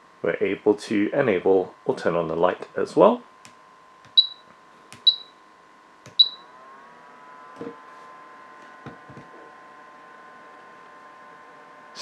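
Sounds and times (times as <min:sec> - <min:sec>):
small fan whine: 0:00.0 - 0:12.0
short high beep: 0:04.2 - 0:04.4, 0:05.0 - 0:05.3, 0:06.2 - 0:06.4.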